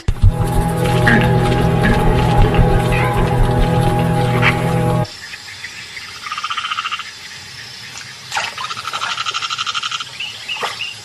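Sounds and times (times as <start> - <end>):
downward sweeping frog call: 0.0 - 5.1.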